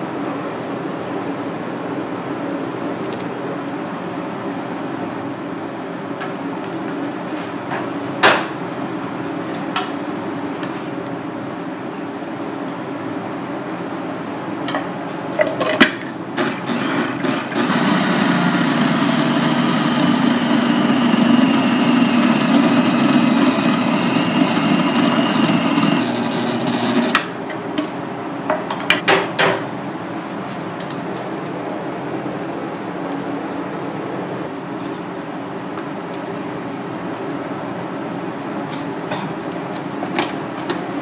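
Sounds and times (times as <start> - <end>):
food processor motor whining: 16.4 - 27.3.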